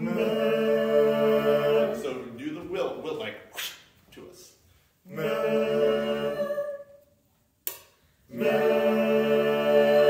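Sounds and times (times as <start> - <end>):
choir singing held chord: 0.0 - 2.4, 5.1 - 7.0, 8.3 - 10.0.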